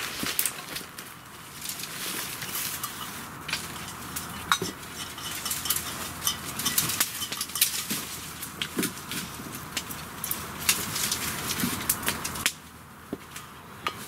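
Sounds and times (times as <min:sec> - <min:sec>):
dry twigs cracking: 0:00.0 - 0:14.0
leaves rustling: 0:00.0 - 0:14.0
wooden sticks knocking: 0:02.4 - 0:09.0.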